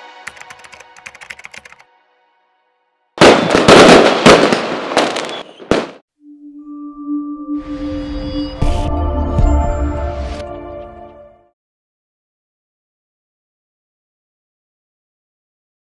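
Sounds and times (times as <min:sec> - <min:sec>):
fireworks crackling and bursting: 0:03.2 - 0:06.0
held musical tone: 0:06.2 - 0:11.5.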